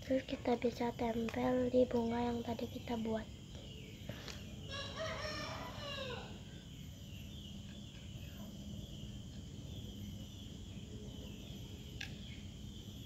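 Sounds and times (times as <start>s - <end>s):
outdoor background noise: 0.0s - 13.0s
distant rooster crowing: 4.6s - 6.7s.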